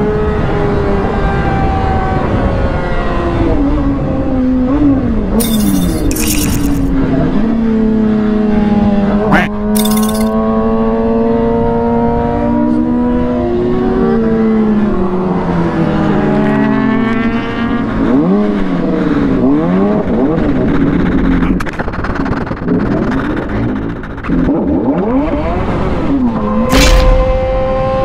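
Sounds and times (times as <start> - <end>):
motorcycle engine at high revs: 3.6 - 21.7, 22.6 - 28.0.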